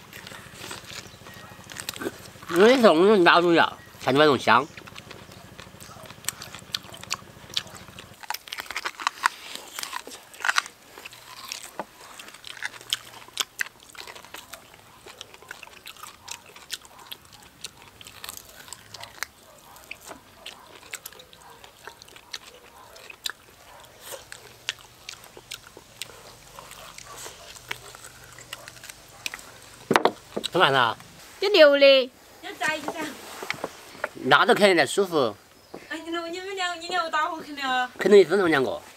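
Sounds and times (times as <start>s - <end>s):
people chewing meat: 0.0s - 31.3s.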